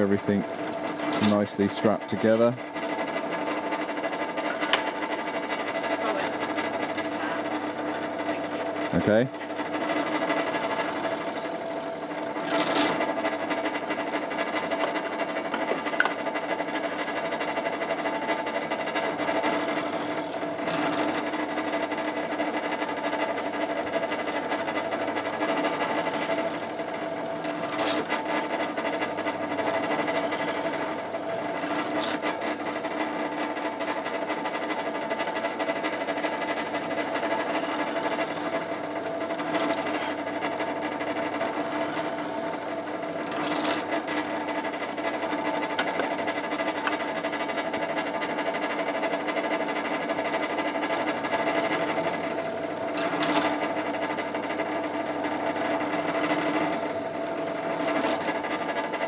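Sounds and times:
drill bit squealing: 0.0s - 1.2s, 10.0s - 12.8s, 19.5s - 21.2s, 25.5s - 28.1s, 29.8s - 32.2s, 37.5s - 40.2s, 41.5s - 43.9s, 51.4s - 53.4s, 55.9s - 58.2s
drill press motor humming: 0.0s - 1.6s, 9.5s - 14.9s, 17.4s - 35.4s, 36.4s - 47.4s, 49.6s - 59.0s.

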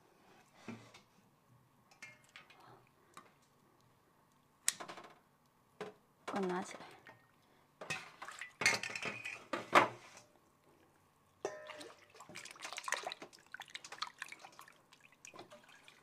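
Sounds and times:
metal utensils clattering on dishes: 7.8s - 9.8s, 11.4s - 11.8s
steel bowl ringing: 11.4s - 11.8s
water splashing and dripping: 11.6s - 16.0s.

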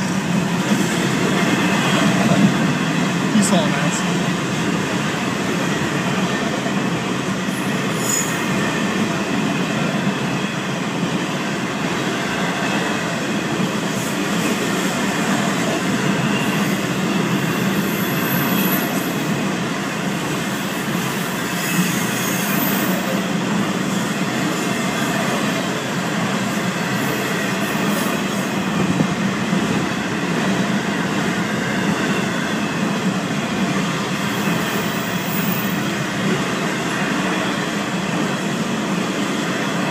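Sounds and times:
steel wheels rumbling on rail: 0.0s - 39.9s.

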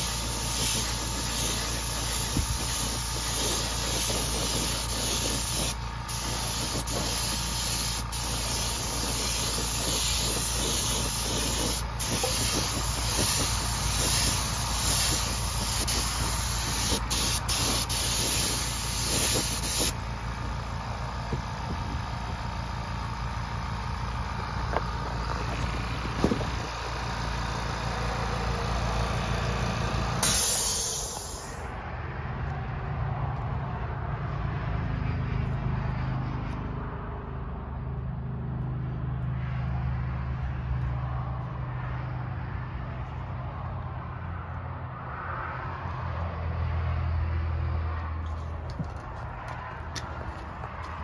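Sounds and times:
paint spray gun hissing: 0.0s - 20.2s, 30.2s - 31.7s
air compressor running: 0.0s - 31.8s.

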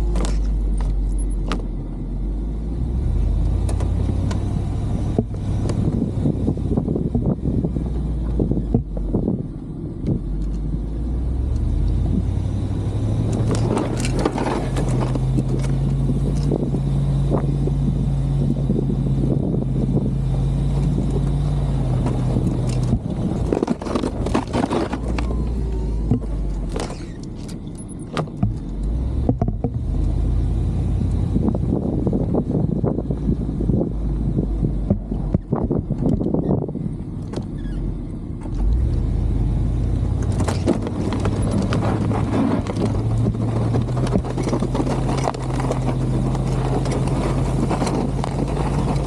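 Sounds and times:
engine pulling under load: 0.0s - 49.0s
knocks and rattles: 22.0s - 25.4s, 26.0s - 29.9s, 40.2s - 49.0s.

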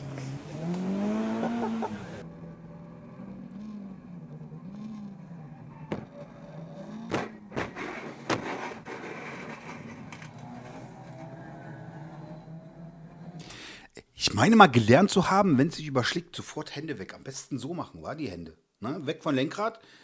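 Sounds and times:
race car engine revving: 0.0s - 8.9s, 9.5s - 13.4s.

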